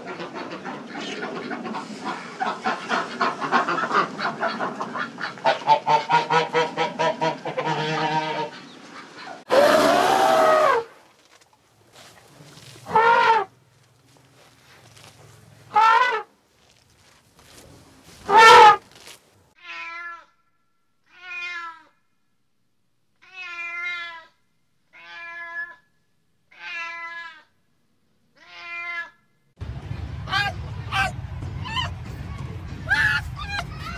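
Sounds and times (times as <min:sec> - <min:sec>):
animal calling: 0:11.9 - 0:16.3, 0:18.2 - 0:20.1, 0:30.3 - 0:32.0, 0:32.8 - 0:33.9.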